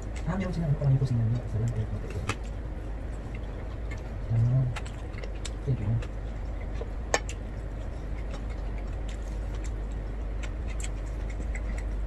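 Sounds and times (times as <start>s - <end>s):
chewing clicks and smacks: 0.0s - 12.0s
steady low hum: 0.0s - 12.0s.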